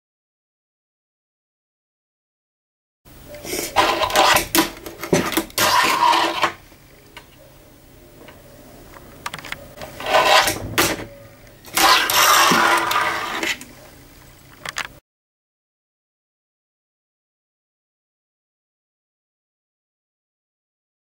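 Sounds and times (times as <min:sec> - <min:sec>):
fingerboard rolling and grinding on wood: 0:03.7 - 0:06.6, 0:09.7 - 0:13.6.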